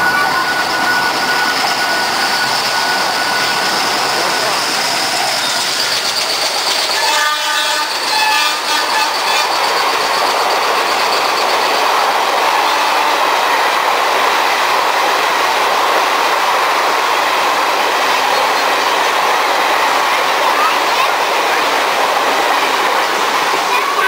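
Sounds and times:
train wheels rushing on rail: 0.0s - 24.0s
train horn: 7.0s - 9.6s, 12.5s - 13.4s.

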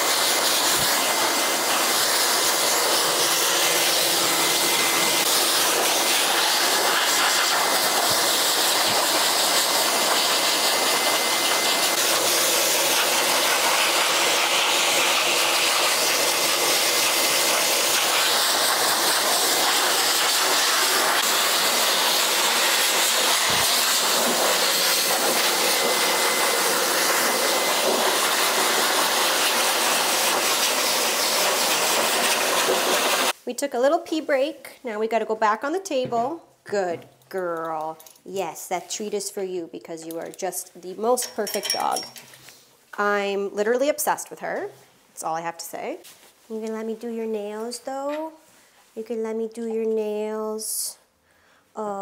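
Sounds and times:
blow dryer rushing air: 0.0s - 33.4s.

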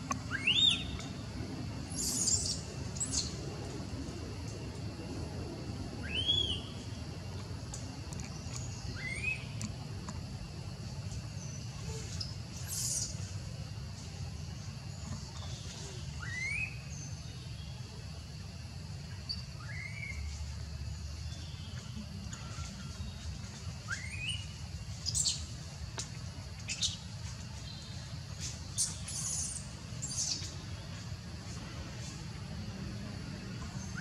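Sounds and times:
low background hum: 0.0s - 34.0s
birds whistling: 0.3s - 1.0s, 16.2s - 16.8s.

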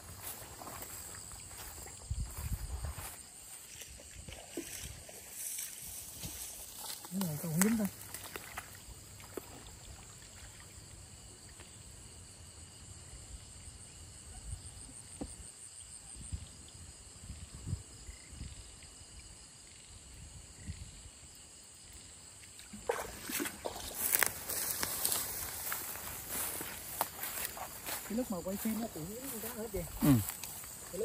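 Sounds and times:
boots stepping in mud: 0.0s - 9.7s, 22.7s - 31.0s
crickets trilling: 0.0s - 31.0s.

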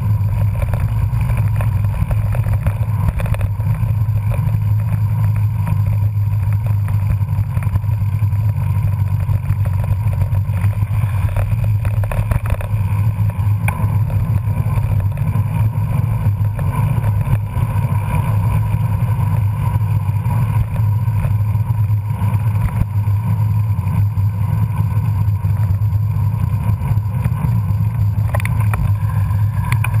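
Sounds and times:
bicycle road noise: 0.0s - 30.0s
wind noise: 0.0s - 30.0s.

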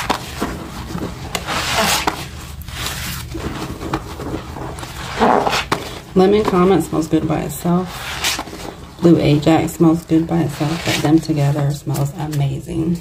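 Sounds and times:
sponge scrubbing wet surface: 10.2s - 11.2s.

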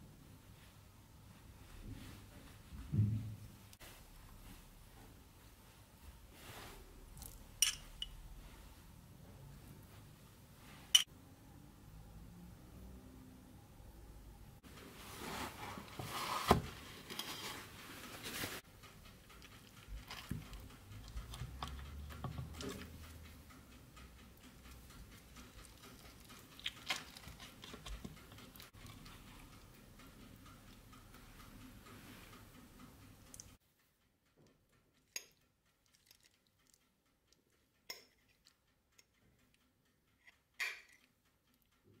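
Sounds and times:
metal fork clicking on plate: 7.6s - 8.1s, 40.6s - 41.2s
spatula handling in metal pan: 40.3s - 41.0s.

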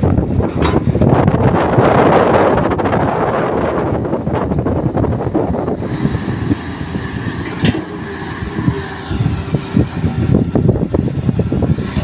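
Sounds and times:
excavator diesel engine: 0.0s - 12.0s
hydraulics moving arm: 3.9s - 12.0s.

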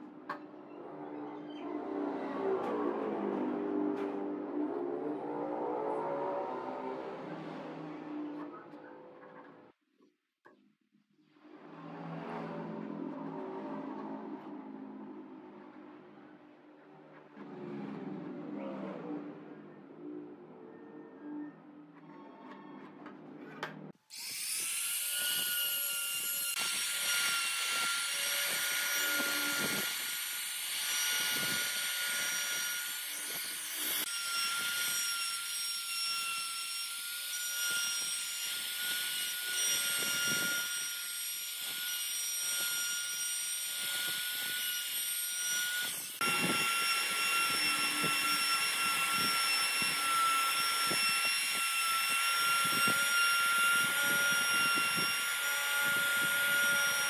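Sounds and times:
router motor whine: 24.2s - 35.2s, 45.5s - 57.0s.

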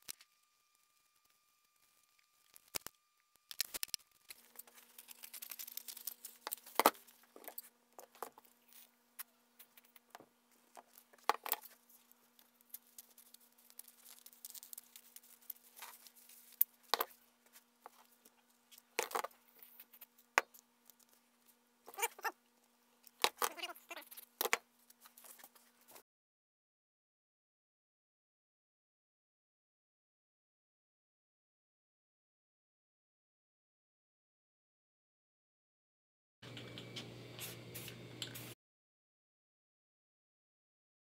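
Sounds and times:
umbrella fabric crinkling: 3.5s - 7.7s, 9.7s - 18.2s.

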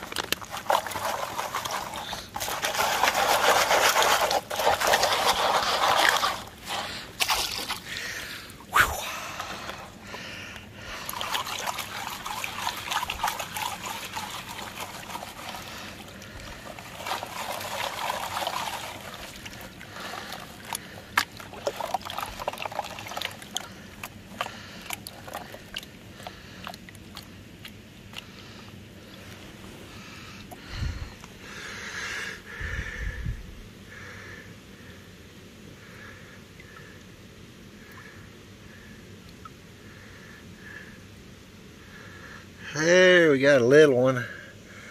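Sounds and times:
water and gravel sloshing in pan: 0.0s - 29.6s.

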